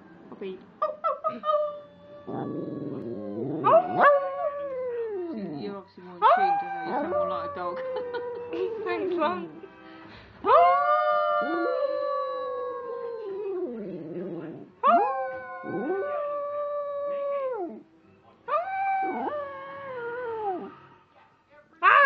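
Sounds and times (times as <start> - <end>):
dog howling: 2.2 - 9.4, 10.5 - 17.8, 18.5 - 20.8.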